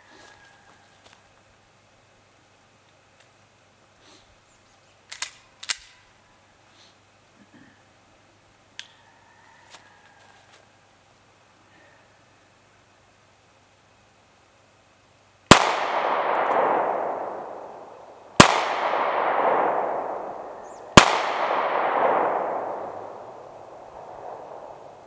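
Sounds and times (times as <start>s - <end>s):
handgun shots with rolling echo: 15.5s - 24.9s.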